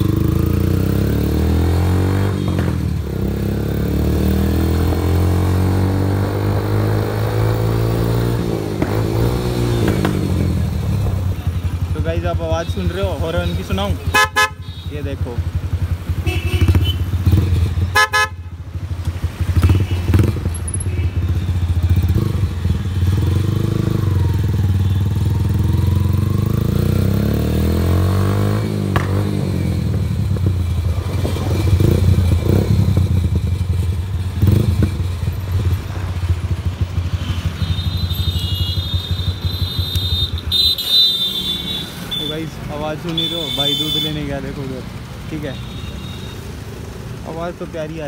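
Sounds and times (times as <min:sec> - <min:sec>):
motorcycle engine running: 0:08.6 - 0:44.0
motorcycle horn blast: 0:14.0 - 0:15.0, 0:16.2 - 0:17.2, 0:17.9 - 0:18.5, 0:19.6 - 0:21.3, 0:37.1 - 0:44.2.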